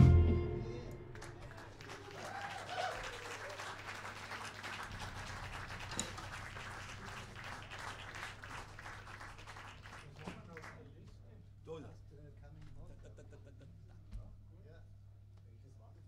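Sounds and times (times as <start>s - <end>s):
hands clapping: 1.1s - 10.9s.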